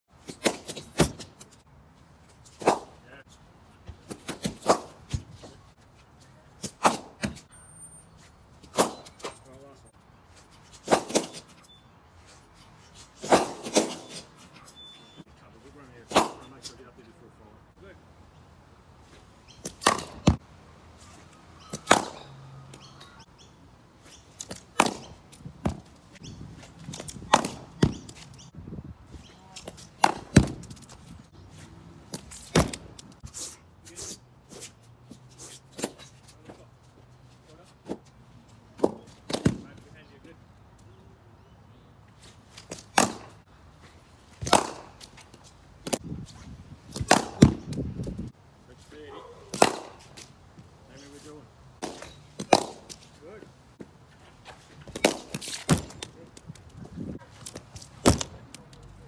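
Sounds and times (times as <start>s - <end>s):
ball bouncing on net surface: 19.6s - 20.4s, 24.4s - 25.9s, 26.9s - 28.3s, 29.5s - 30.9s, 38.8s - 39.8s, 44.4s - 45.1s, 47.0s - 47.8s, 49.5s - 50.2s, 51.8s - 53.0s, 54.8s - 56.2s, 57.4s - 58.4s
cricket bat hitting ball: 21.8s - 22.3s, 24.7s - 25.1s, 27.2s - 28.0s, 30.0s - 30.6s, 43.0s - 43.3s, 44.4s - 44.9s, 47.0s - 47.6s, 49.5s - 50.0s, 51.8s - 52.9s
cricket ball bouncing on pitch: 51.8s - 52.9s.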